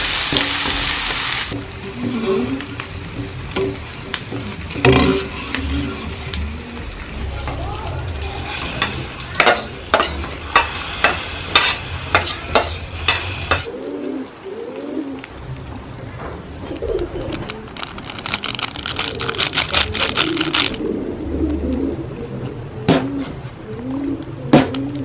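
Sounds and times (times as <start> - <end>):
metal spatula scraping a wok: 1.9 - 2.8, 4.8 - 6.2
doves cooing: 5.1 - 8.5, 13.7 - 25.0
fast crackle: 15.2 - 21.2.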